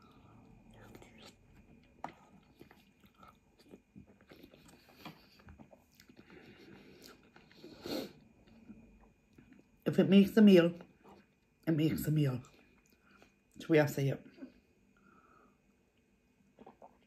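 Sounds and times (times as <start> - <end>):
soft wet chewing: 0.0 - 9.8, 10.6 - 13.6, 14.3 - 17.0.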